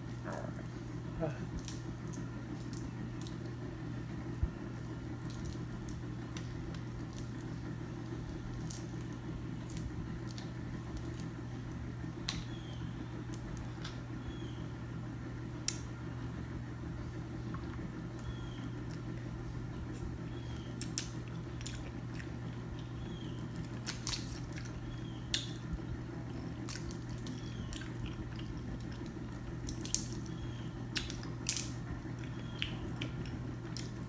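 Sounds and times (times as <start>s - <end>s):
low background hum: 0.0s - 34.0s
seafood shells cracking: 23.5s - 24.7s, 26.6s - 34.0s.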